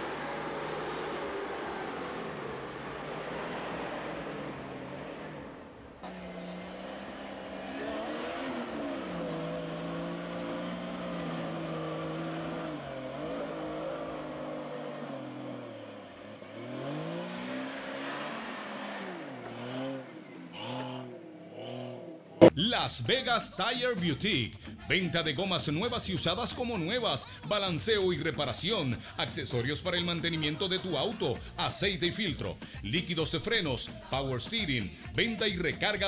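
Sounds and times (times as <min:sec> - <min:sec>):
vehicle engine revving: 0:00.0 - 0:22.5.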